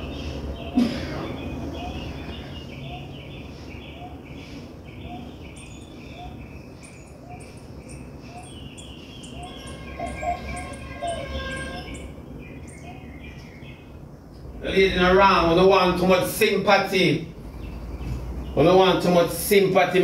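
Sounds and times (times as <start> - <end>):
louder held calls: 8.4 - 13.1.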